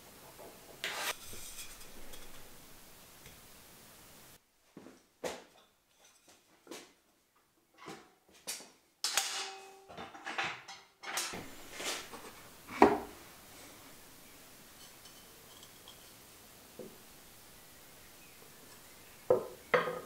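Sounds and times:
wooden tools knocking on workbench: 12.7 - 13.2, 19.3 - 20.0.

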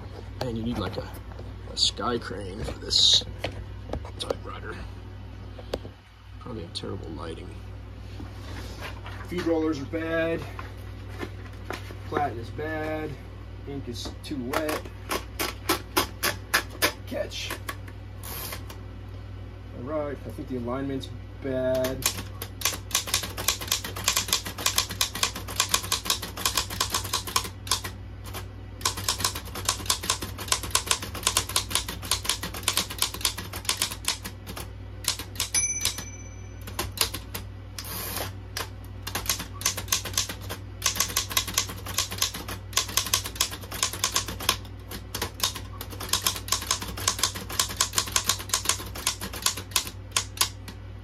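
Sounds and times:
typewriter bell ring: 35.4 - 37.0.

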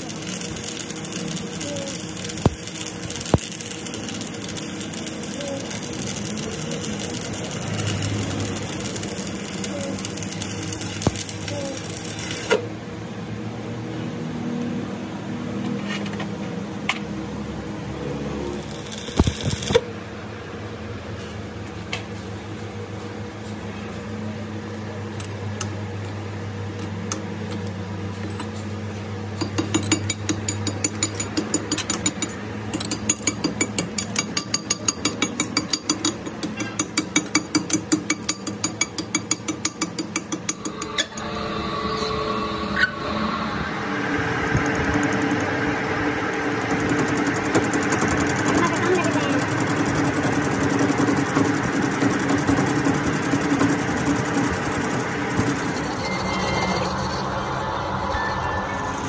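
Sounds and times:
arc welding crackling hiss: 0.0 - 12.6, 18.5 - 19.8
machine hum: 0.0 - 59.0.

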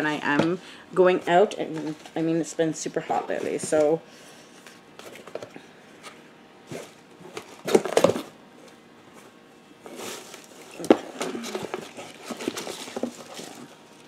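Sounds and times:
hands rummaging in cardboard box: 9.8 - 13.8
packaging rustling: 9.9 - 14.0.

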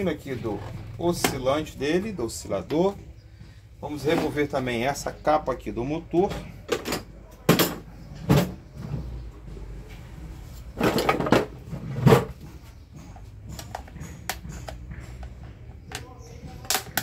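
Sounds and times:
fan parts clunking and clattering: 6.2 - 17.0.

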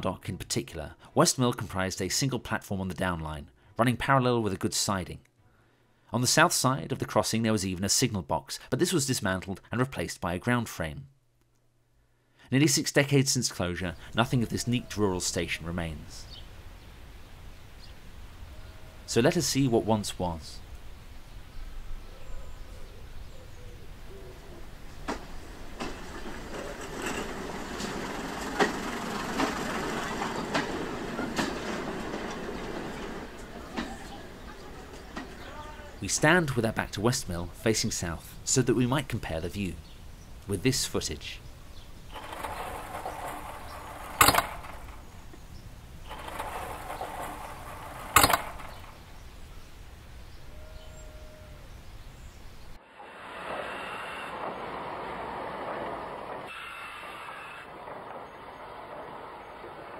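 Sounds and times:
wheels clicking over rail joints: 24.5 - 37.7, 38.4 - 50.5, 54.3 - 56.7
train running on jointed track: 24.8 - 36.6, 42.0 - 49.5, 53.4 - 59.9
wooden gate rattling: 24.9 - 36.6, 41.8 - 49.6
gate banging against post: 25.1 - 35.8, 42.1 - 45.1, 46.1 - 49.0.

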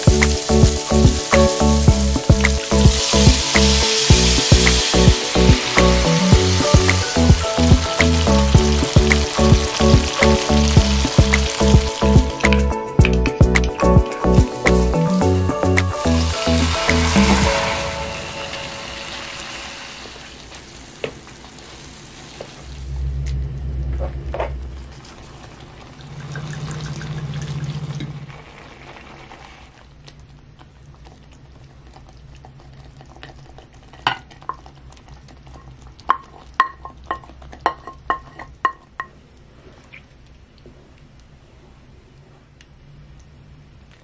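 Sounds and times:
tomatoes sizzling in a pan: 0.0 - 22.8
liquid pouring: 24.8 - 36.8.

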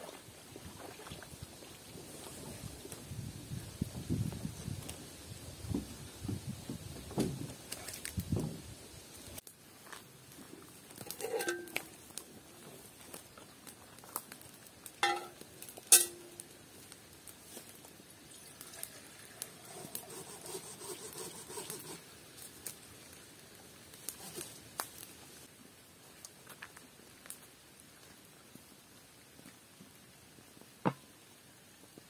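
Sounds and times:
campfire crackling: 0.0 - 32.0
metal pot clanking on grill: 11.0 - 11.9, 15.0 - 16.4.

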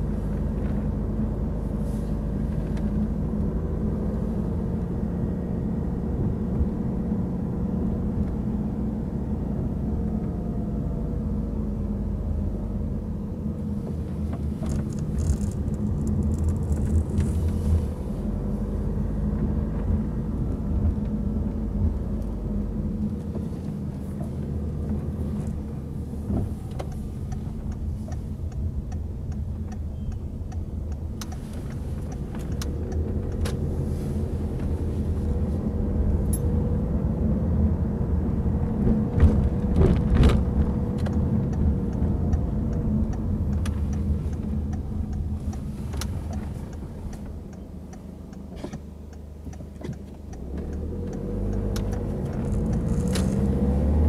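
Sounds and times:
car engine and tyre rumble: 0.0 - 54.0
light regular ticking: 26.5 - 34.8, 40.8 - 53.6.

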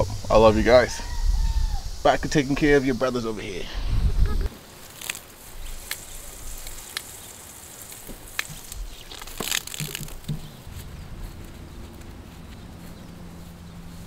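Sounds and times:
garden hose spraying water: 0.0 - 11.4
sharp clicks and crunches: 4.8 - 7.2, 7.8 - 13.0.

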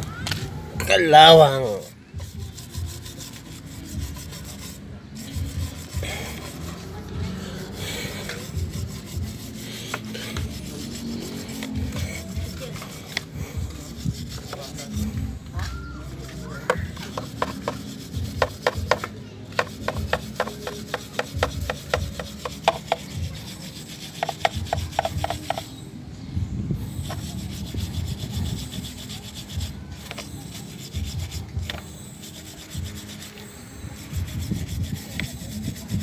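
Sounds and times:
wire brush scrubbing chain: 1.0 - 15.1, 16.2 - 25.8, 26.9 - 36.0.

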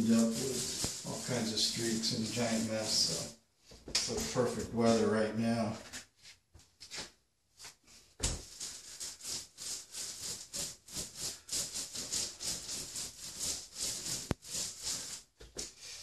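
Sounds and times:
paint roller rasping on wall: 0.0 - 3.3, 8.3 - 15.4.

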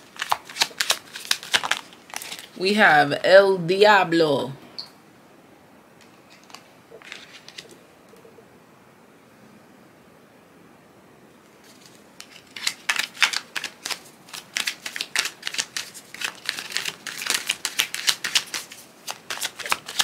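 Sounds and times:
cards being shuffled: 0.0 - 2.6, 6.0 - 8.3, 11.6 - 20.0.

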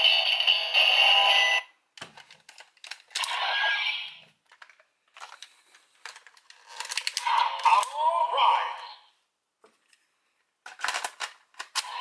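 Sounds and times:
plastic toy clicks and rattles: 4.5 - 7.9, 10.7 - 12.0.

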